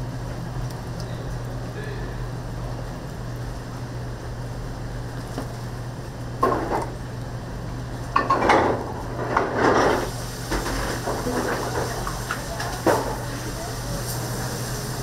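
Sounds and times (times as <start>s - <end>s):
steady low hum: 0.0s - 15.0s
metal kitchen utensils clattering: 8.2s - 13.3s.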